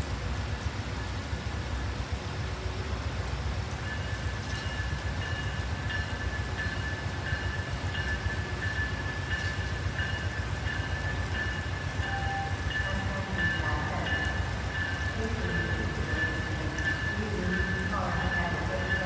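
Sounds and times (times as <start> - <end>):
steady rain: 0.0 - 19.0
locomotive bell ringing: 3.8 - 19.0.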